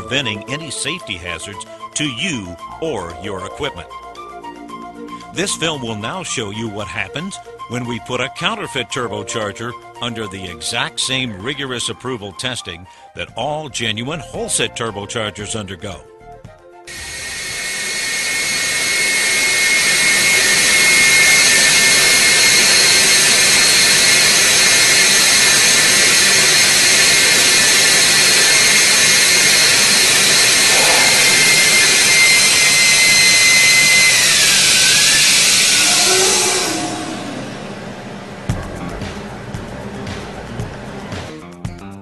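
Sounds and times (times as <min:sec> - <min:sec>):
turbocharger high whine: 0:16.9 - 0:41.1.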